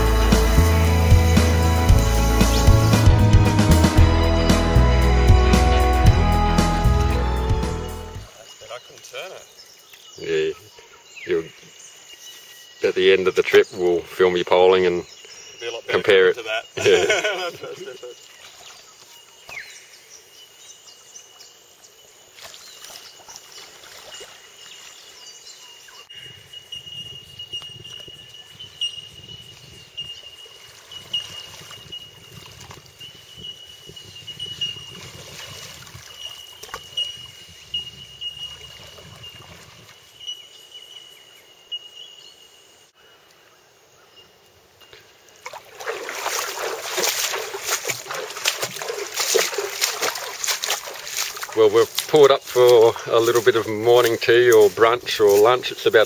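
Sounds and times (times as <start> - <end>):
river water trickling and splashing: 8.2 - 10.1, 15.2 - 26.1, 29.5 - 40.9, 45.0 - 56.0.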